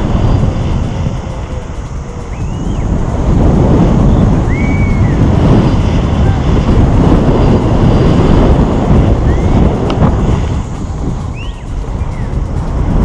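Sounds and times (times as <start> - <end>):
loud wind rush over microphone: 0.0 - 13.0.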